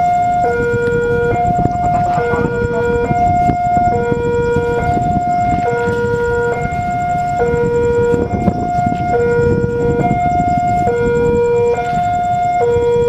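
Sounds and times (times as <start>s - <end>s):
background rumble: 0.0s - 13.0s
two-tone crossing alarm: 0.0s - 13.0s.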